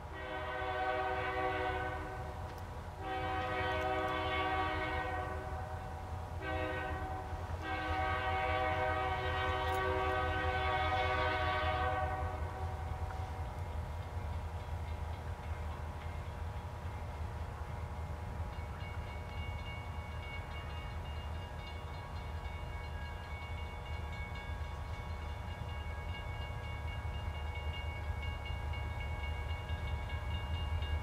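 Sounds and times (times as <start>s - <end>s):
locomotive air horn blasts: 0.1s - 2.4s, 3.0s - 12.9s.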